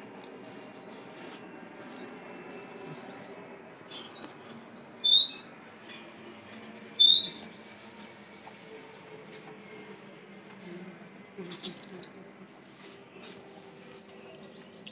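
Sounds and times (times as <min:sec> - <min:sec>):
small birds chirping: 0:01.8 - 0:07.6
high-pitched rising bird calls: 0:05.0 - 0:05.6, 0:07.0 - 0:07.5.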